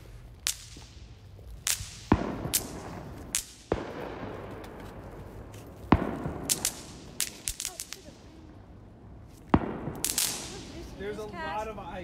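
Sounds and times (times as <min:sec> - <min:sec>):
snap pops crackling: 0:00.4 - 0:04.8, 0:05.5 - 0:08.2, 0:09.4 - 0:10.7
loud bangs with echo: 0:01.7 - 0:04.6, 0:05.9 - 0:08.2, 0:09.5 - 0:10.8.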